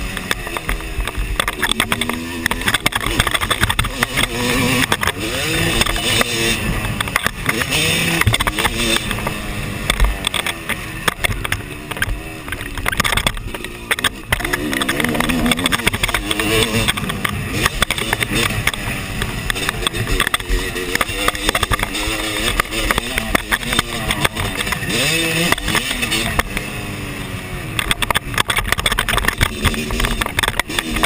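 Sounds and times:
motocross bike engine revving: 0.0 - 31.0.

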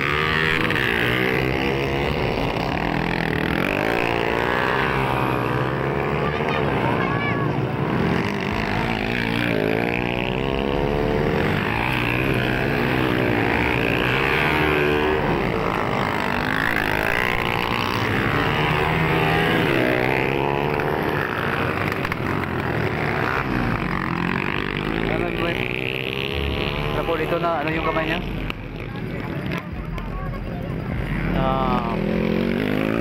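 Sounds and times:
dirt bike engines revving: 0.0 - 33.0.

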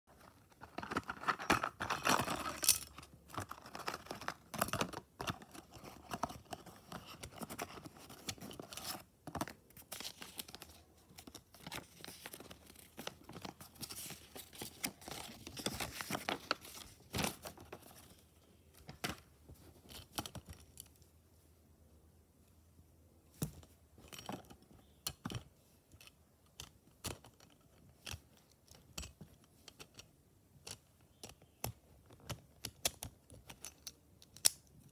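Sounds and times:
paper rustling: 9.8 - 18.1.

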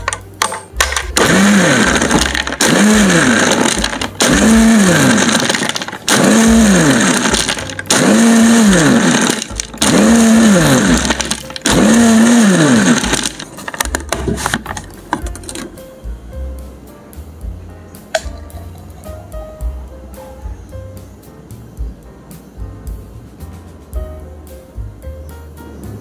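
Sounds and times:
blender motor whining: 1.2 - 14.7.

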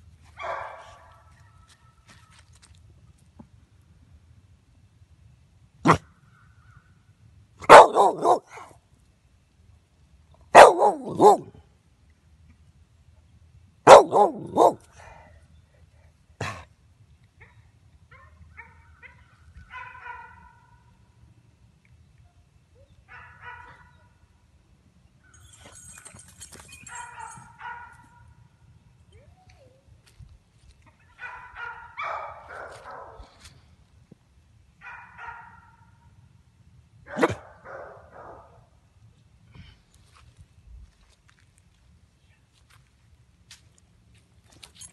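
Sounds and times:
dog barking: 0.4 - 1.3, 5.8 - 6.0, 7.6 - 8.7, 10.5 - 11.6, 13.8 - 14.8, 18.2 - 20.8, 23.1 - 24.1, 26.9 - 28.3, 31.0 - 33.3, 34.8 - 36.0, 37.1 - 38.6.

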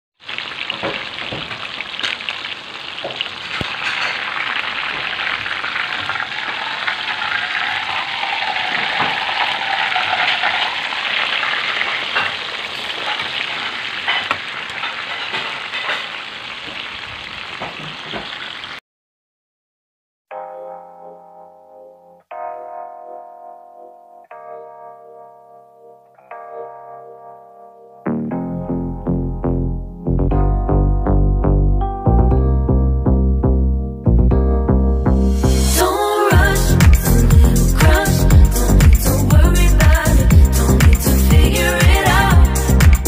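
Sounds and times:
chicken sizzling in hot oil: 0.2 - 18.8
oil popping and spattering: 0.2 - 18.8.

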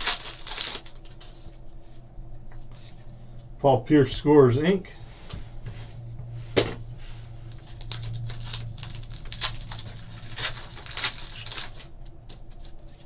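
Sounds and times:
foil wrapper crinkling and tearing: 0.0 - 1.6, 7.4 - 13.0
low steady hum: 0.0 - 13.0.

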